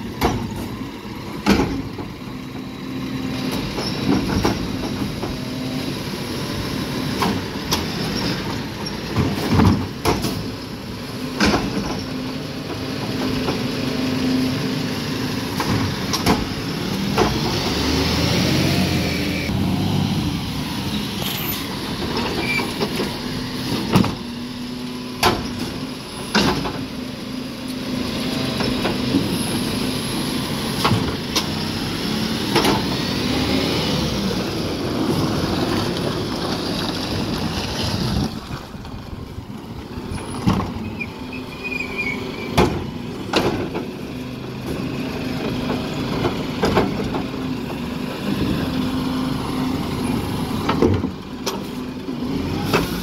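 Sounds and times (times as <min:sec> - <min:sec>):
garbage truck diesel engine: 0:00.0 - 0:53.0
sharp knocks and clunks: 0:01.4 - 0:02.1, 0:42.5 - 0:43.9.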